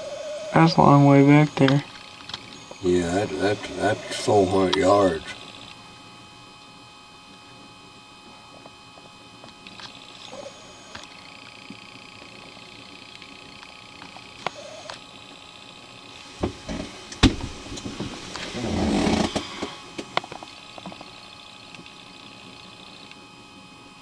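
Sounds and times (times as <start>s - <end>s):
scraping rustle: 16.1s - 20.1s.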